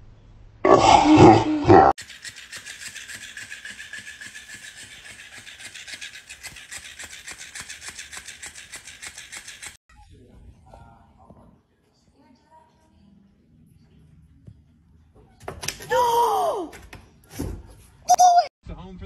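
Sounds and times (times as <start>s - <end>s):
fish toy rapid clicking: 2.0s - 9.8s.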